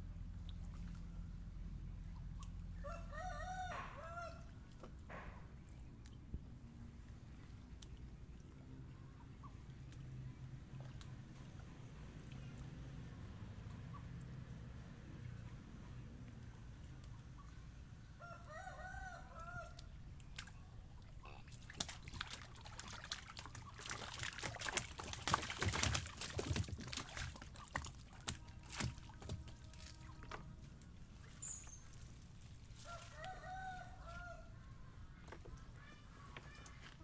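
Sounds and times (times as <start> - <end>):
fish flapping on wet floor: 21.6 - 30.4.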